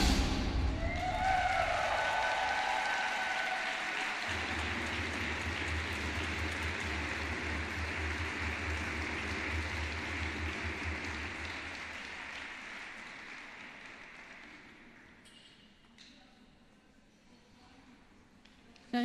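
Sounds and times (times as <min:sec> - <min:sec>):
audience applauding: 0:00.8 - 0:15.2.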